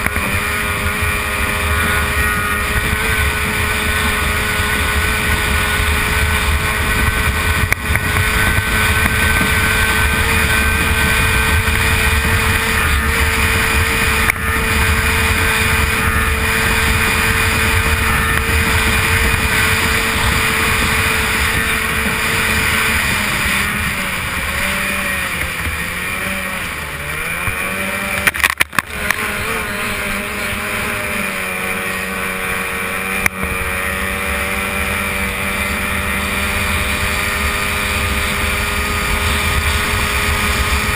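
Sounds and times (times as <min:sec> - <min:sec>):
racing outboard engine: 0:00.0 - 0:40.9
rushing wind and water: 0:00.0 - 0:40.9
brief clatter: 0:28.2 - 0:29.2.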